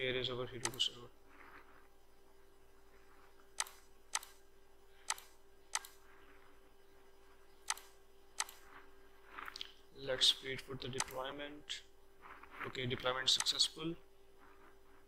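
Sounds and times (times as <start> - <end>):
faint steady hum: 0.0 - 15.0
computer mouse clicking: 0.6 - 0.8, 3.6 - 4.4, 5.0 - 6.0, 7.7 - 8.7, 11.0 - 11.2, 13.4 - 13.6.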